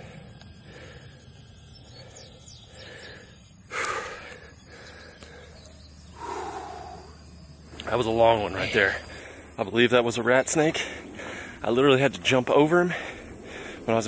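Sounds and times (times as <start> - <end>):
man breathing hard: 0.0 - 7.5, 8.9 - 9.6, 10.8 - 11.6, 12.8 - 13.9
faint bird chirps: 1.5 - 9.3.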